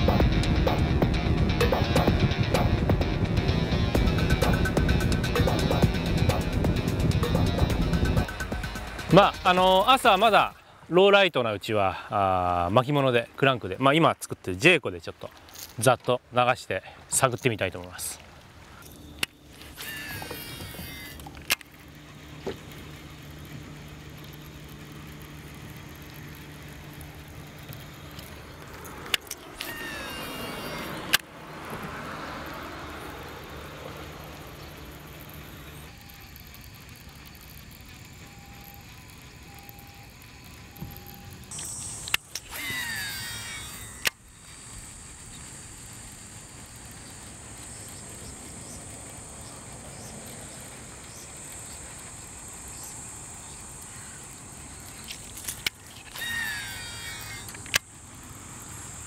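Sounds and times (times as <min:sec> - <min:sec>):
steady low hum: 0:00.0 - 0:10.9, 0:18.2 - 0:59.0
fishing reel spool whirring: 0:00.0 - 0:11.4, 0:17.6 - 0:59.0
insects buzzing: 0:00.0 - 0:59.0
fishing reel click: 0:18.8 - 0:31.3, 0:34.2 - 0:59.0.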